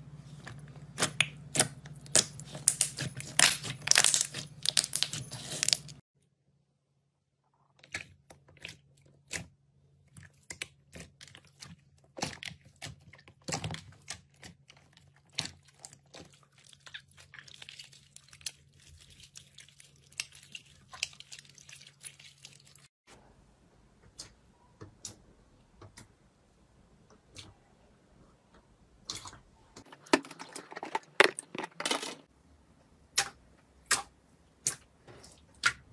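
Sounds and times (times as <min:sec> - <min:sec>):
slime crackling and popping: 0:01.0 - 0:06.0.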